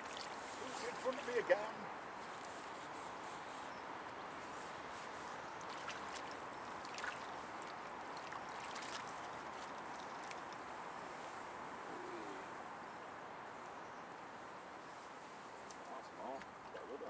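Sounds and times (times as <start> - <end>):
river water rushing: 4.3 - 10.8.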